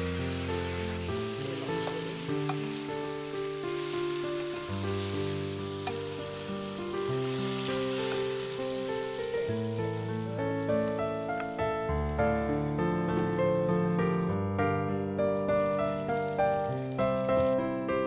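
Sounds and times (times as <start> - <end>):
meat sizzling in a wok: 0.0 - 14.4, 15.3 - 17.6
background music of held notes: 0.0 - 17.7
wooden spatula stirring: 0.3 - 9.2.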